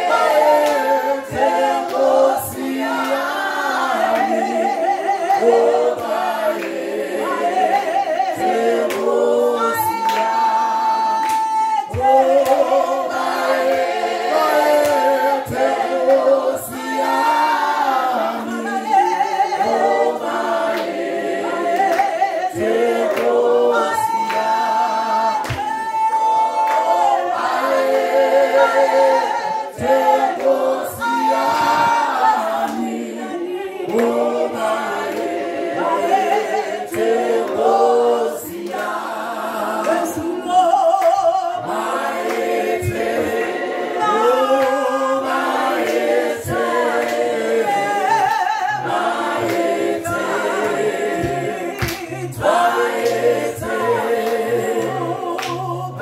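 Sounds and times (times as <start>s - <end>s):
group singing a cappella in harmony: 0.0s - 56.0s.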